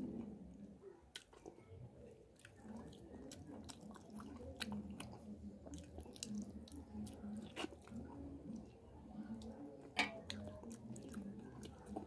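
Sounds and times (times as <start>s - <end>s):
chewing food: 0.0s - 12.0s
wet mouth clicks and smacks: 1.1s - 1.5s.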